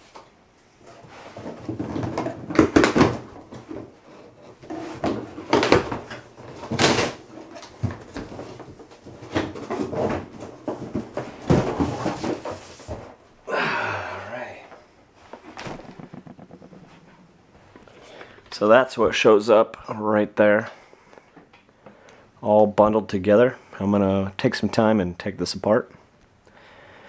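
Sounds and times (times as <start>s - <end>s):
cardboard flaps rustling: 0.8s - 13.2s, 15.3s - 18.1s.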